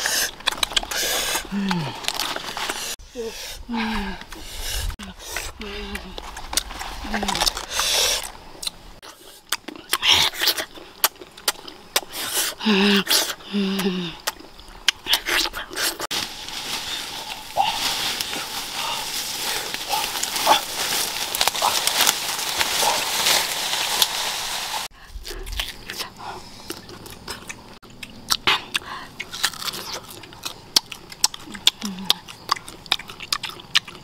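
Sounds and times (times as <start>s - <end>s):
person chewing mango: 0.0s - 3.0s, 5.0s - 16.1s, 24.9s - 34.0s.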